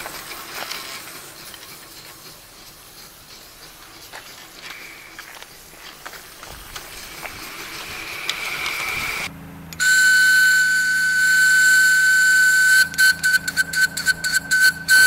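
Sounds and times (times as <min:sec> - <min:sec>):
steam engine hissing: 0:00.0 - 0:15.0
steam whistle: 0:08.8 - 0:15.0.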